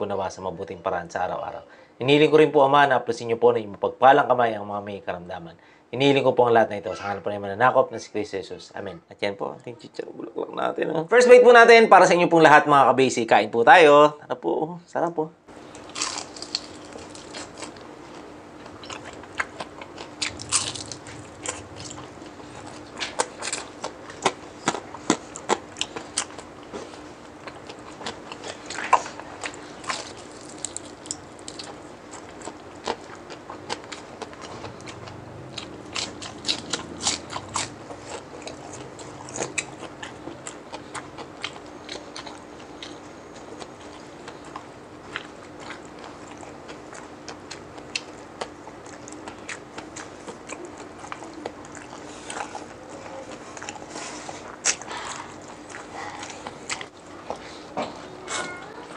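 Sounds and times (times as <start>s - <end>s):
faint steady hum: 0.0s - 58.9s
crispy food crunching: 15.6s - 57.4s
chewing: 15.6s - 58.4s.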